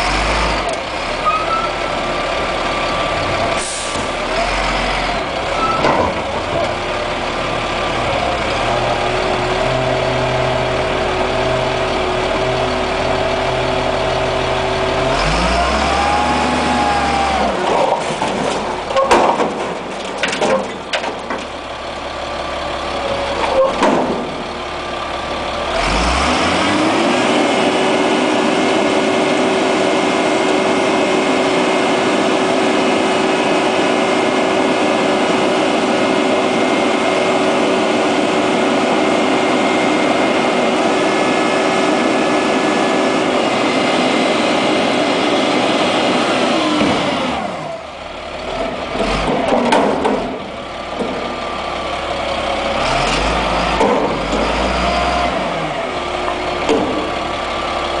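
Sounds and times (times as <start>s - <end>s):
diesel engine revving: 0.0s - 58.0s
metal clanks and bangs: 5.6s - 6.8s, 17.6s - 21.6s, 23.4s - 24.4s, 48.6s - 51.4s, 56.3s - 57.3s.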